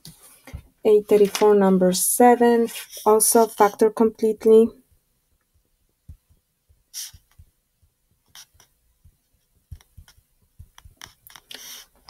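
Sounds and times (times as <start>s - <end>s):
stylus tapping on touchscreen: 8.3s - 11.4s.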